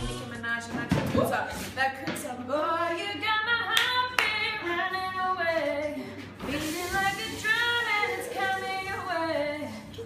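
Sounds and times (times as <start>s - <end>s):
girls singing: 2.5s - 10.0s.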